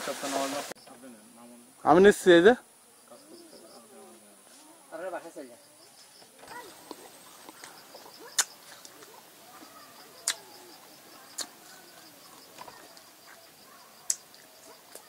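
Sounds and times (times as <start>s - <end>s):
faint bird calls: 5.5s - 15.0s.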